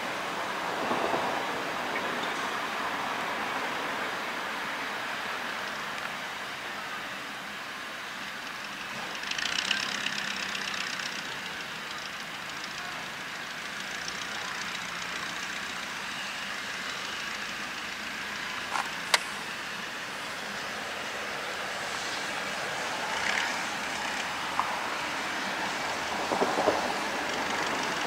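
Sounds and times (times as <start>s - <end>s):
engine hum: 7.9s - 28.0s.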